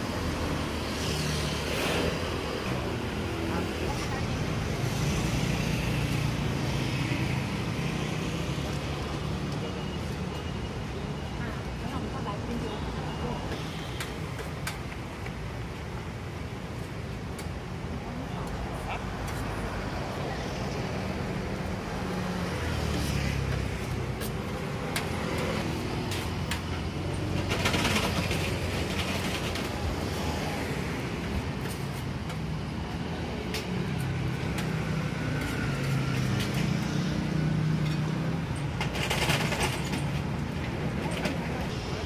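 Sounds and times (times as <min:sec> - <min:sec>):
passing traffic hum: 0:00.0 - 0:42.0
scattered clicks and knocks: 0:13.5 - 0:15.9, 0:23.5 - 0:30.3, 0:37.7 - 0:41.8.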